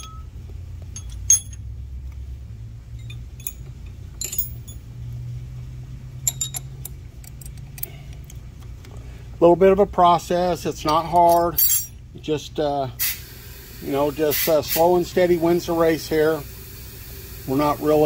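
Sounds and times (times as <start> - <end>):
metal tools clinking on metal: 0.0 - 1.8, 2.9 - 5.0, 6.2 - 8.4, 10.8 - 12.1
low steady hum: 0.0 - 13.0.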